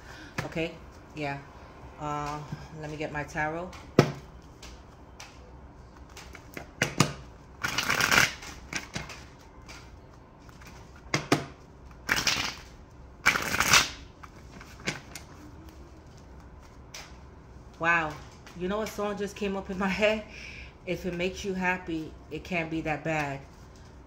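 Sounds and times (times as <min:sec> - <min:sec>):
cards being shuffled: 0:03.6 - 0:17.2.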